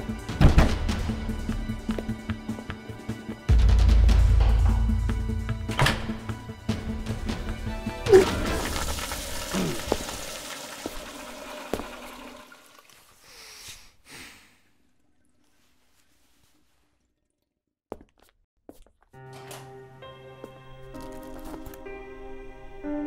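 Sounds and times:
toilet flushing: 7.9s - 13.2s.

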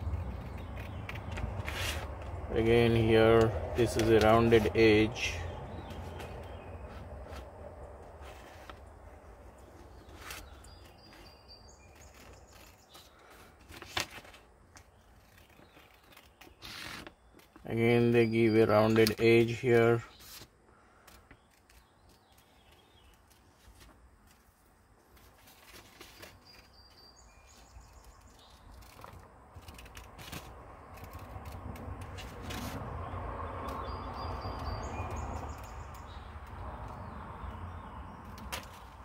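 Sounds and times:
paper rustling: 0.0s - 2.4s, 9.7s - 17.6s, 20.1s - 26.8s, 27.5s - 32.8s.

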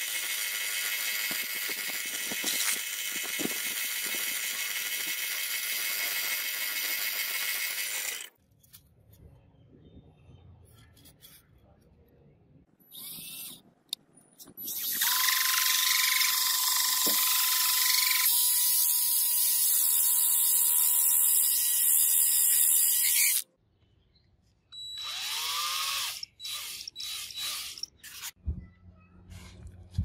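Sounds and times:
power drill motor whine: 0.0s - 8.3s, 14.7s - 19.0s, 24.8s - 28.3s.

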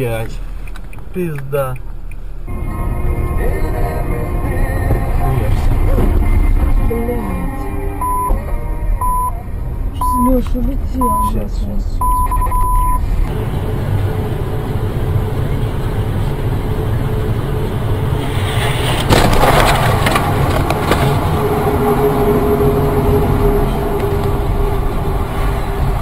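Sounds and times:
car tyre and engine rumble: 0.0s - 26.0s
electronic beep: 8.0s - 8.4s, 9.0s - 9.4s, 10.0s - 10.3s, 11.0s - 11.4s, 12.0s - 13.1s.

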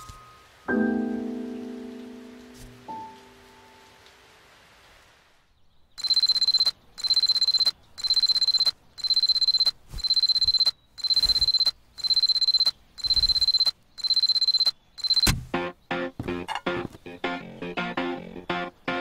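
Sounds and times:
alarm clock beeping: 6.0s - 15.3s.

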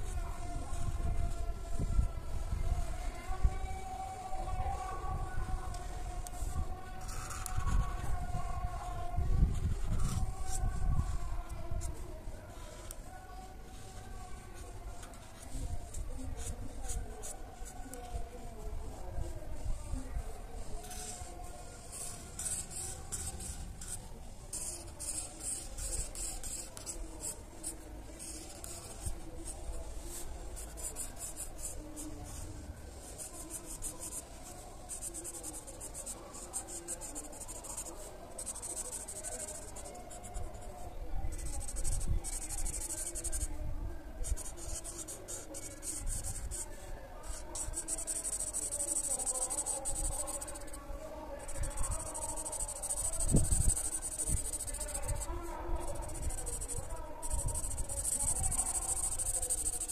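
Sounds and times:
marker scratching on paper: 12.6s - 18.2s, 20.8s - 43.5s, 44.2s - 50.8s, 51.4s - 59.9s.

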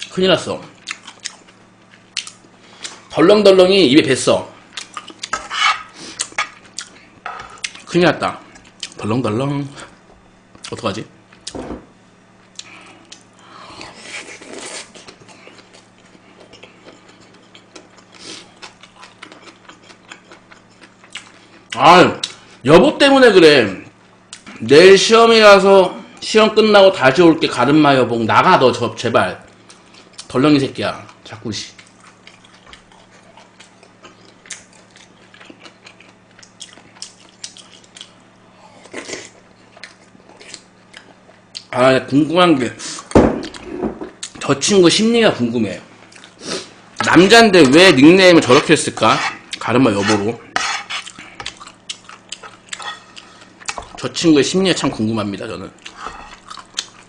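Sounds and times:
low electrical hum: 0.0s - 57.0s
person chewing food: 0.8s - 3.0s, 4.7s - 7.0s, 12.4s - 22.4s, 31.8s - 41.7s, 46.1s - 47.1s, 49.3s - 54.0s, 55.8s - 57.0s.

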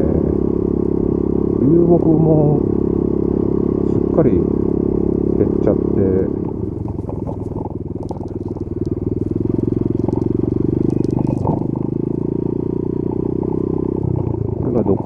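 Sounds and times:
motorcycle engine running: 0.0s - 15.0s.

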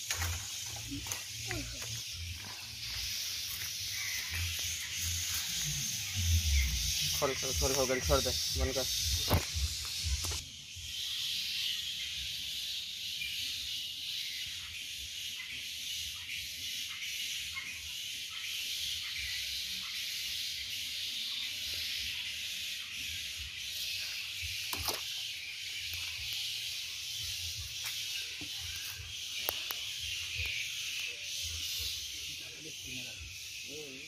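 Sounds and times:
high-pitched hiss: 0.0s - 12.3s
sharp click: 9.2s - 10.4s.

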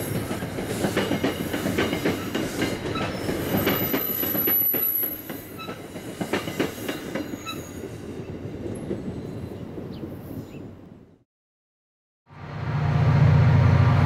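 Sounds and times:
train wheels clicking over rails: 0.0s - 7.5s
high wheel squeal: 6.7s - 8.0s
train rumble: 12.3s - 14.0s.

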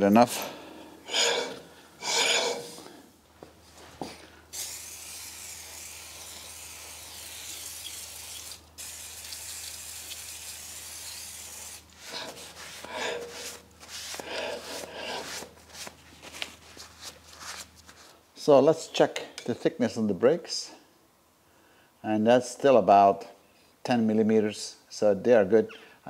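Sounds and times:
aerosol spray hissing: 4.5s - 12.9s
cloth wiping a disc: 11.9s - 18.1s.

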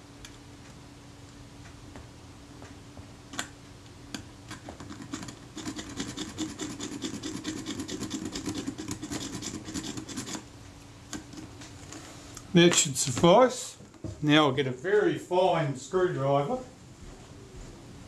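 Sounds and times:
file rasping on metal: 5.1s - 10.4s.

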